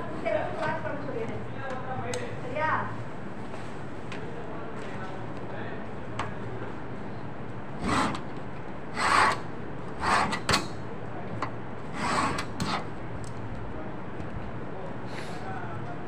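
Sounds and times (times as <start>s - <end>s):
hand tool scraping material: 7.8s - 8.2s, 9.0s - 10.8s, 12.0s - 12.9s.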